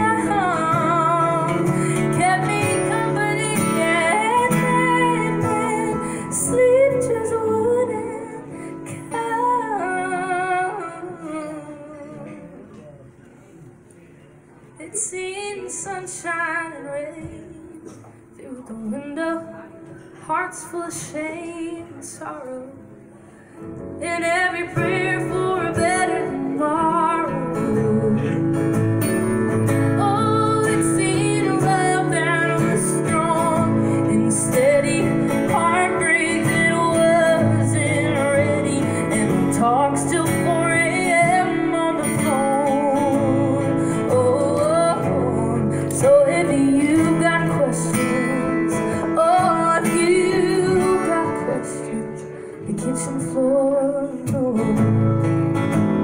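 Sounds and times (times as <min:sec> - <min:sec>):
acoustic guitar strumming: 0:00.0 - 0:12.5, 0:23.8 - 0:56.0
woman singing: 0:00.0 - 0:12.6, 0:14.8 - 0:22.9, 0:23.9 - 0:55.3.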